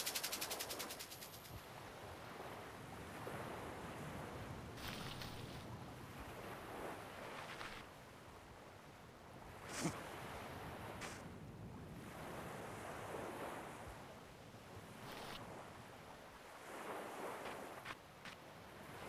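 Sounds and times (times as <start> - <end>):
ocean waves washing ashore: 0.0 - 19.0.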